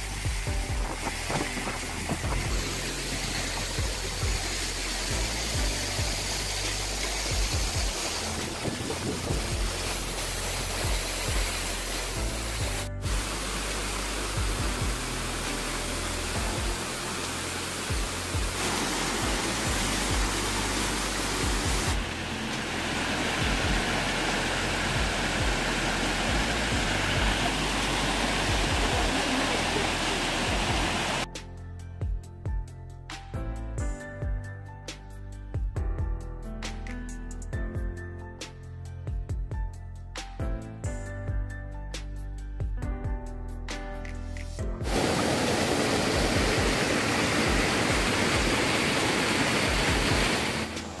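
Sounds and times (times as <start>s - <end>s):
waterfall rushing: 0.0s - 31.3s, 44.8s - 51.0s
background music: 0.0s - 51.0s.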